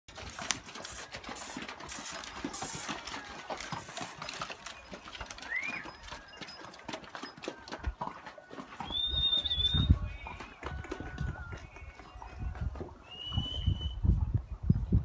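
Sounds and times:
hooves knocking on stones: 0.1s - 13.8s
whistle-like animal call: 5.3s - 6.7s, 8.8s - 10.5s, 13.0s - 14.1s.

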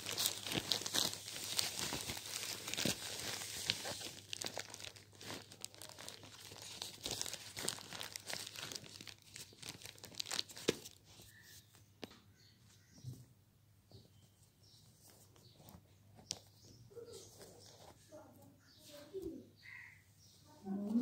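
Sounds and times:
plastic mailer crinkling: 0.0s - 11.4s.

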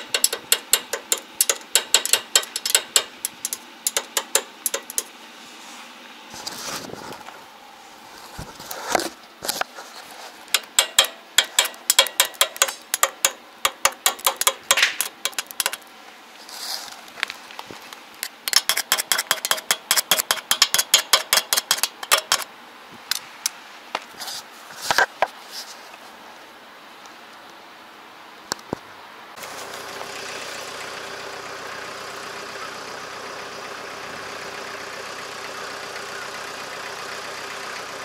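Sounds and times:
hammer tapping on steel: 0.0s - 5.1s, 10.6s - 15.8s, 18.5s - 22.4s.

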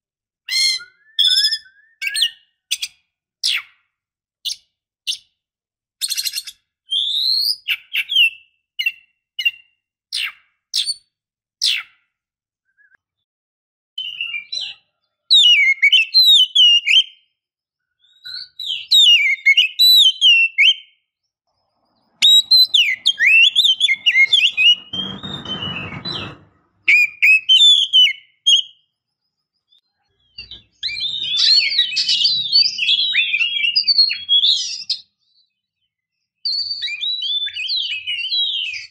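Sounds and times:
songbird whistling song: 0.5s - 3.8s, 6.0s - 12.0s, 12.6s - 13.1s, 14.0s - 21.2s, 21.9s - 38.9s
bird harsh rasp: 22.2s - 28.1s.

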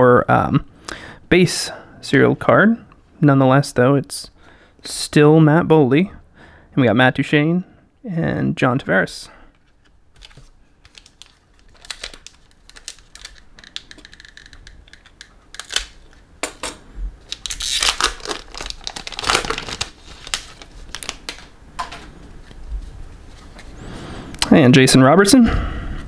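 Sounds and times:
cards being shuffled: 9.5s - 16.3s, 17.2s - 23.7s
foil wrapper crinkling: 9.6s - 16.3s, 17.2s - 21.6s.

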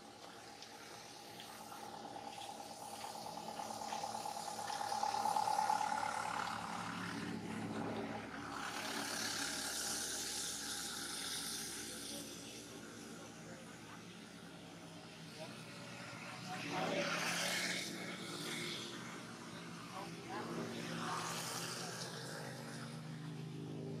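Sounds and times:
vehicle engine passing by: 0.0s - 24.0s
hiss: 8.7s - 12.6s.

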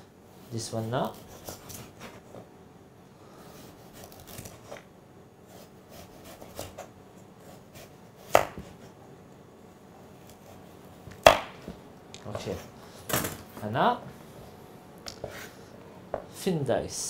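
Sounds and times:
knife slicing carrot on board: 7.5s - 8.9s.

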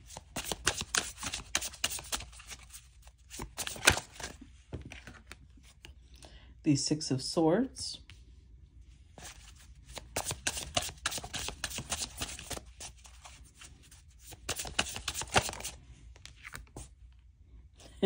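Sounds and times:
cards shuffling: 0.0s - 6.0s, 9.2s - 16.9s.

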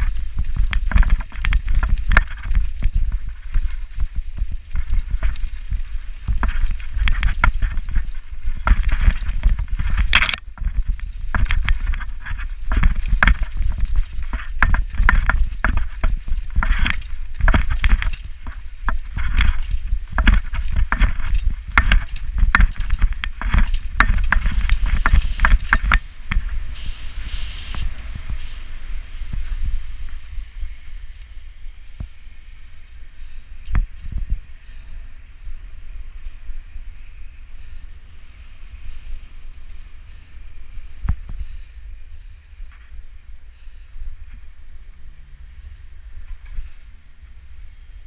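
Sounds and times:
mountain bike clattering and rattling: 0.0s - 26.6s
wind rumble on microphone: 0.0s - 48.0s.

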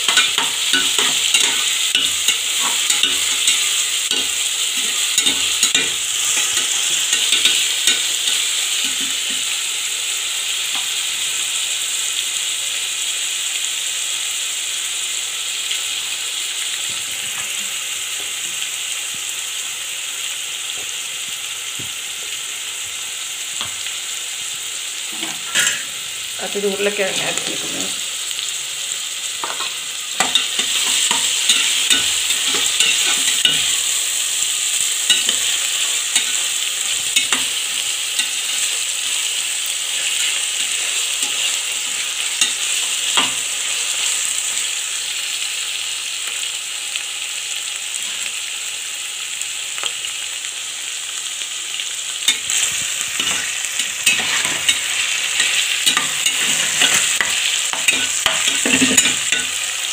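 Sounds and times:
vegetables sizzling in hot oil: 0.0s - 59.9s
spatula scraping and knocking pot: 52.3s - 59.5s.

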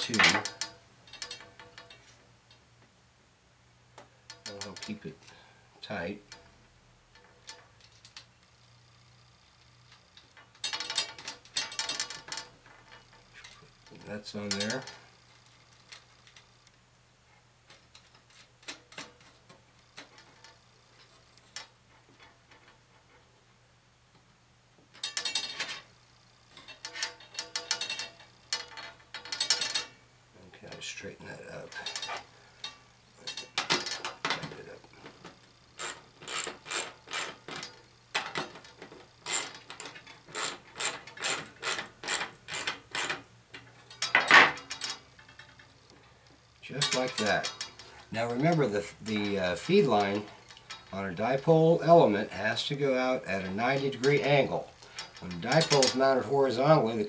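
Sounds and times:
small metal hardware clinking: 24.9s - 25.9s, 26.5s - 30.0s, 35.2s - 45.8s, 46.7s - 51.0s, 54.8s - 56.1s
socket ratchet clicking: 35.8s - 37.7s, 39.2s - 43.2s.

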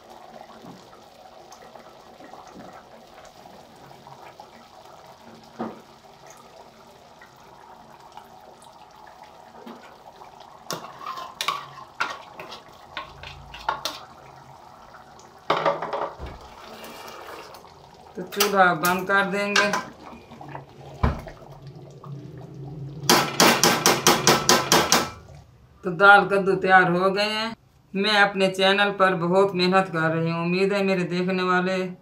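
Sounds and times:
oil pouring: 0.0s - 25.4s
curry bubbling in pot: 0.0s - 25.5s.

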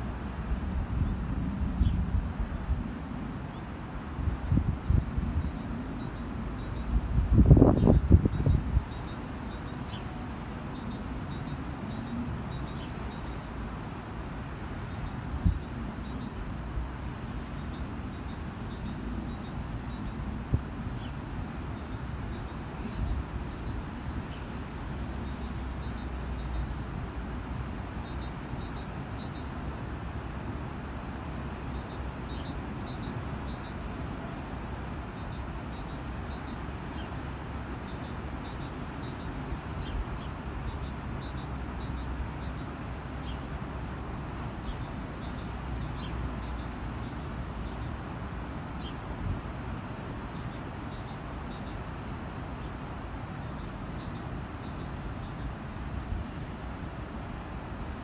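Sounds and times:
small birds chirping: 4.4s - 16.4s, 17.4s - 26.9s, 27.9s - 29.6s, 31.6s - 34.3s, 35.0s - 43.5s, 44.5s - 48.0s, 48.7s - 51.9s, 52.6s - 55.6s.

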